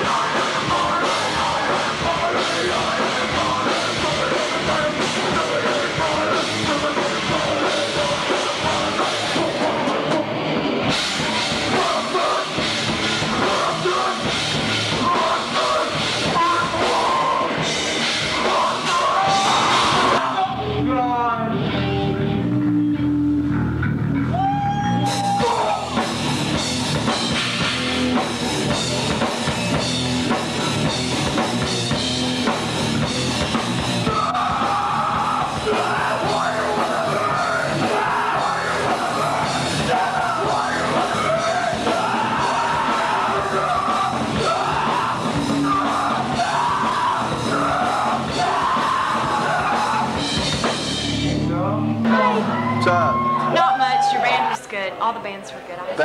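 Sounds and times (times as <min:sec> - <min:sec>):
drum kit: 0:00.0 - 0:54.6
distorted guitars: 0:00.0 - 0:56.0
shouted vocals: 0:11.5 - 0:21.5, 0:24.3 - 0:26.2, 0:34.0 - 0:50.5, 0:52.0 - 0:54.8
low sliding guitar notes: 0:17.9 - 0:26.8, 0:33.9 - 0:53.6.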